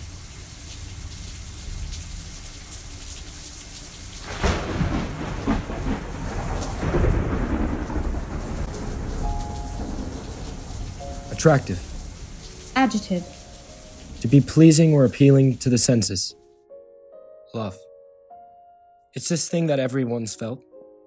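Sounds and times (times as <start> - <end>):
steady rain falling: 0.0 - 16.3
thunder cracking and rumbling: 4.2 - 13.3.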